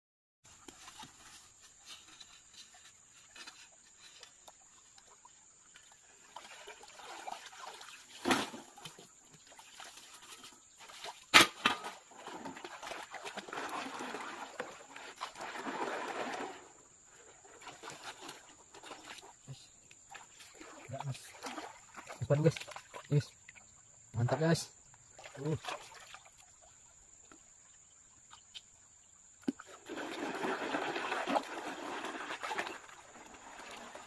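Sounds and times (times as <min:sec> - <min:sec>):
water sloshing and splashing: 0:00.5 - 0:34.0
shovel scraping wet gravel: 0:11.3 - 0:16.8, 0:29.7 - 0:34.0.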